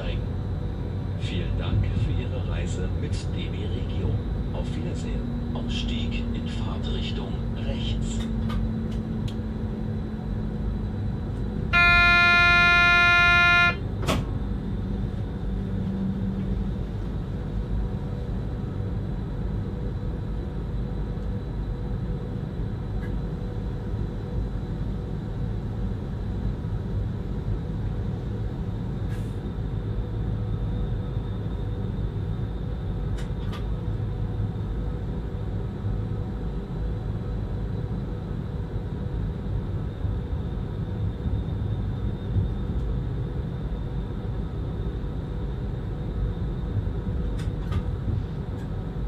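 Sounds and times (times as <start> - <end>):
train cab low rumble: 0.0 - 49.0
steady horn tone: 11.7 - 14.0.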